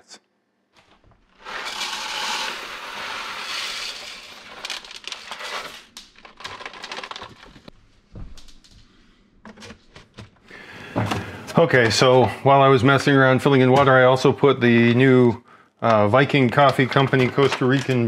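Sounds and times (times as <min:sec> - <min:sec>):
coffee beans rattling into hopper: 0:01.4 - 0:07.4.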